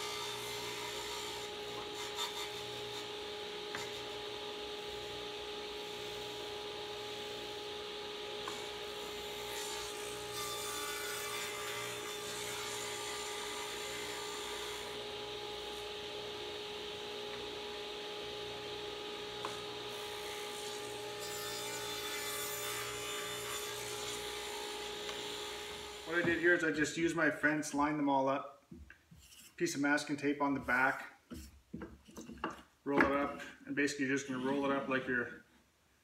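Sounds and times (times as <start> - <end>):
table saw cutting wood: 0.0 - 26.8, 34.1 - 35.1.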